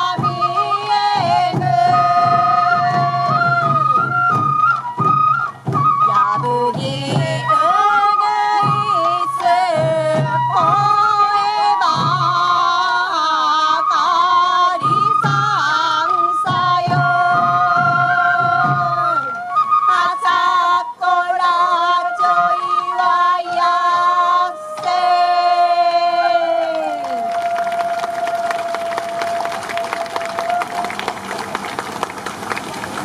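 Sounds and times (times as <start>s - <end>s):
taiko drums beating: 0.0s - 7.6s, 27.3s - 33.0s
bamboo flute melody: 0.0s - 33.0s.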